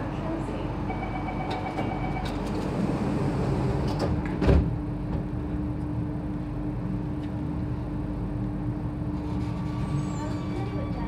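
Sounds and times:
train hum: 0:00.0 - 0:11.0
steady warning tone: 0:00.9 - 0:02.4
sliding doors thumping shut: 0:02.4 - 0:05.2.

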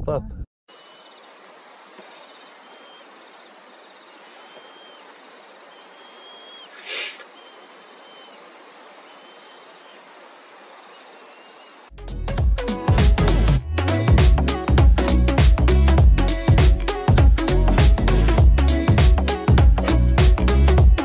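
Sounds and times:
brief rush of noise: 0:06.7 - 0:07.3.

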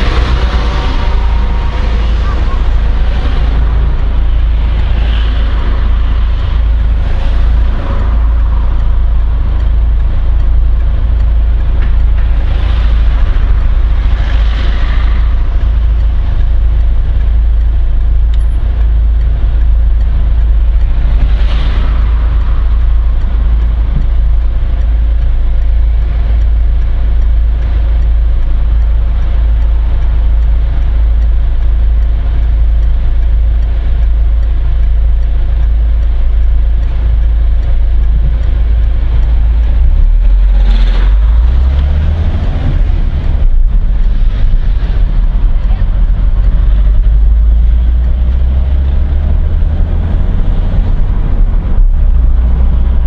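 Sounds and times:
car engine idling: 0:00.0 - 0:53.0
passing cars road noise: 0:00.0 - 0:53.0.

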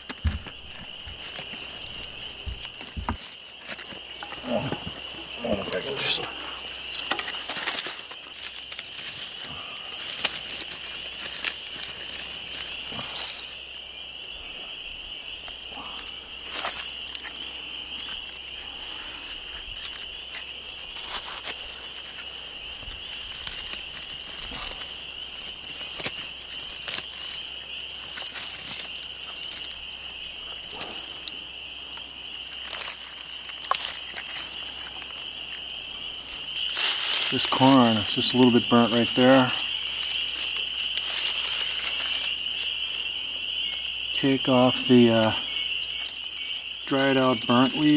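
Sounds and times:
stones clicking and scraping: 0:00.0 - 0:13.8, 0:19.6 - 0:29.8, 0:32.5 - 0:35.2, 0:36.6 - 0:42.7
dry leaves crinkling and rustling: 0:00.0 - 0:47.9.

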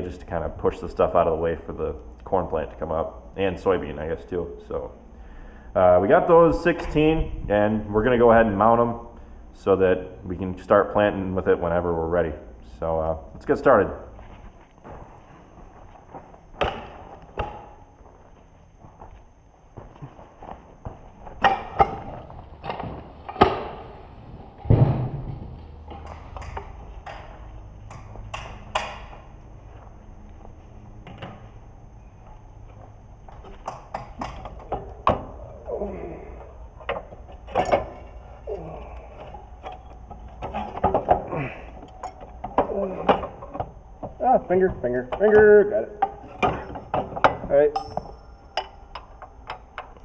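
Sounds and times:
low steady hum: 0:00.0 - 0:50.0
metal tools clanking: 0:36.8 - 0:50.0.

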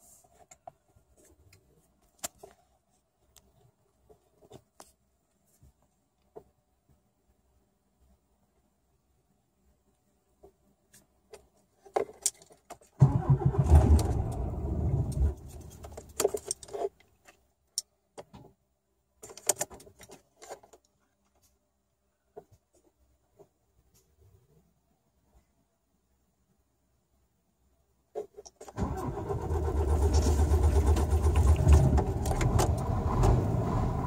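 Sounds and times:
diesel engine cranking: 0:13.0 - 0:16.1, 0:28.8 - 0:34.0.

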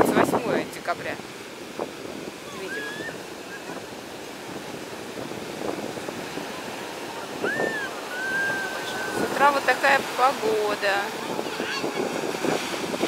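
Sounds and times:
surf breaking on beach: 0:00.0 - 0:13.0
wind buffeting microphone: 0:00.0 - 0:13.0
child crying out: 0:02.5 - 0:03.2.

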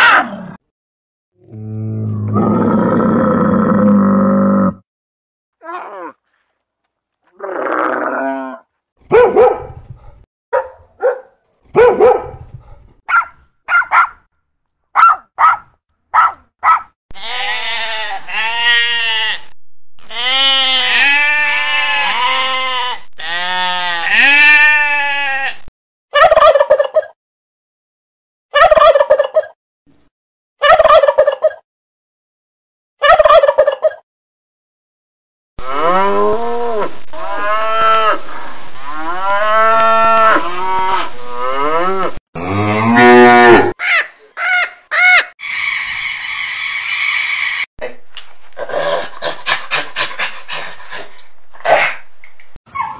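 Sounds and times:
sheep bleating: 0:17.1 - 0:25.7.

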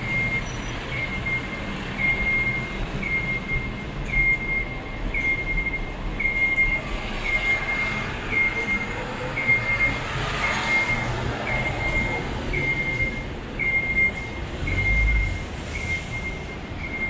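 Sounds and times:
high electronic beep: 0:00.0 - 0:17.0
street traffic: 0:00.0 - 0:17.0
vehicle rumbling past: 0:06.8 - 0:13.7.

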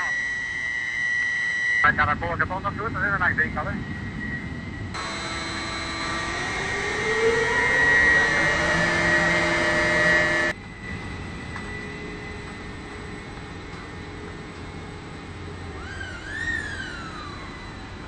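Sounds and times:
steady machinery hum: 0:00.0 - 0:18.0
hoist motors whining: 0:04.9 - 0:10.6, 0:15.4 - 0:18.0.

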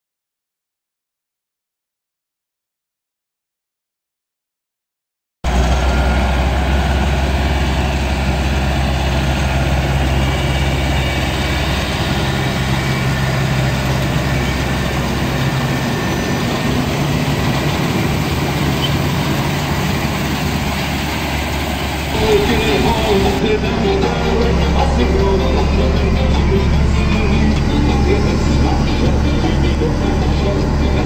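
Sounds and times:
harvesting machinery clatter: 0:05.5 - 0:23.5
diesel tractor engine running: 0:05.5 - 0:31.0.

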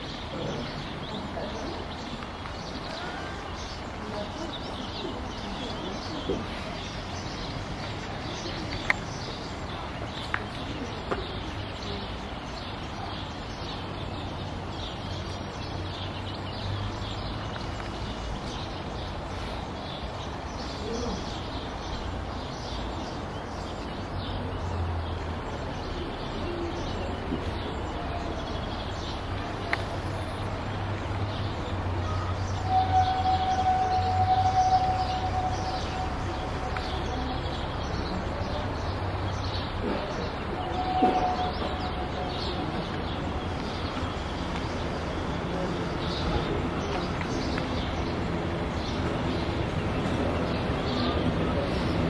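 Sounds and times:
birds chirping: 0:00.0 - 0:52.0
electric railcar motor hum: 0:29.2 - 0:52.0.

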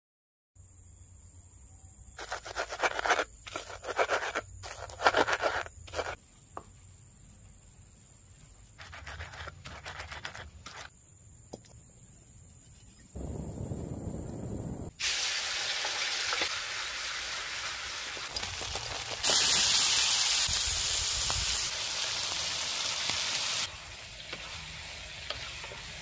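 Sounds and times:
rough scraping and rubbing: 0:02.2 - 0:06.2, 0:08.8 - 0:10.9.

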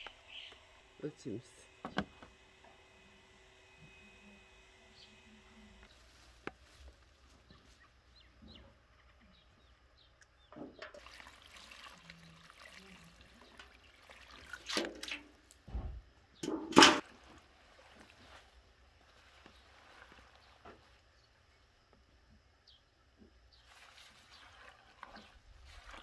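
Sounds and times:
splashes and knocks: 0:10.5 - 0:18.4
water pouring from metal bucket: 0:10.8 - 0:15.6, 0:16.7 - 0:20.6, 0:23.6 - 0:26.0.

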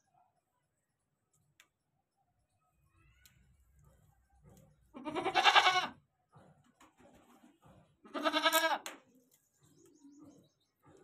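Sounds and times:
goat bleating: 0:05.0 - 0:06.0, 0:08.1 - 0:08.8.

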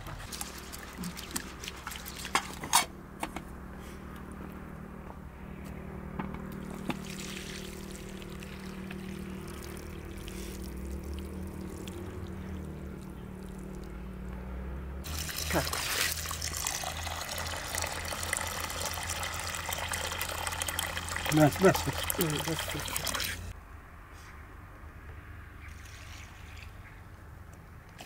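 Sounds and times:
water pouring into plastic basin: 0:00.3 - 0:02.6, 0:06.7 - 0:12.3, 0:15.1 - 0:23.4.

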